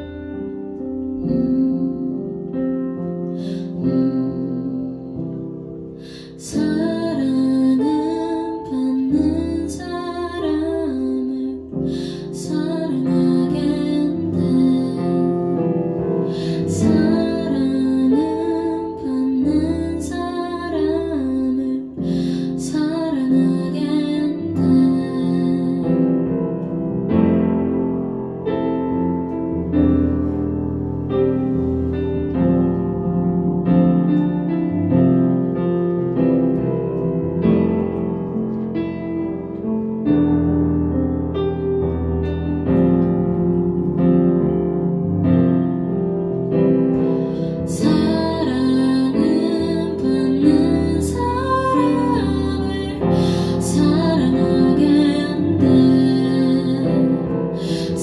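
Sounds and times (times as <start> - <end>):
piano chords and melody: 0.0 - 58.0
woman singing: 1.2 - 2.6, 3.2 - 26.4, 47.0 - 58.0.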